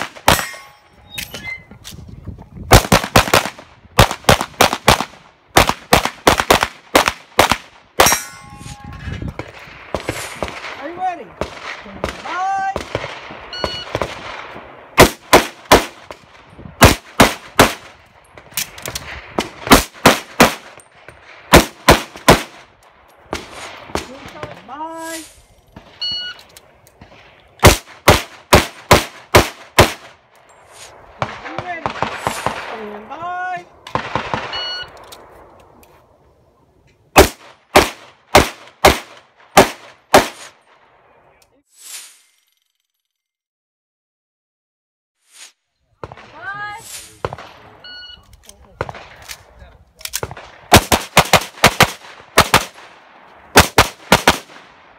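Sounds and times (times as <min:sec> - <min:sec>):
pistol firing rapid shots: 0:02.7 - 0:08.2, 0:15.0 - 0:16.1, 0:21.5 - 0:22.6, 0:27.6 - 0:30.1, 0:37.2 - 0:40.4, 0:50.2 - 0:52.9, 0:53.6 - 0:54.7
pistol shots: 0:11.4 - 0:16.2, 0:16.8 - 0:17.9, 0:21.5 - 0:22.6, 0:27.0 - 0:30.1, 0:37.2 - 0:40.5, 0:50.2 - 0:54.8.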